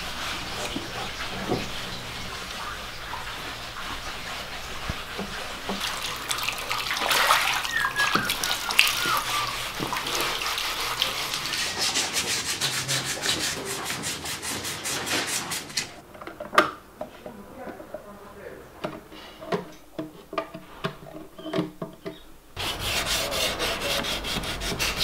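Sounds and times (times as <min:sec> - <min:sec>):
sandpaper strokes: 0:00.0 - 0:05.8, 0:07.6 - 0:16.0, 0:22.6 - 0:25.0
scraping wooden furniture: 0:00.0 - 0:05.9, 0:07.2 - 0:18.1, 0:18.8 - 0:25.0
wavering squeak: 0:07.6 - 0:09.8.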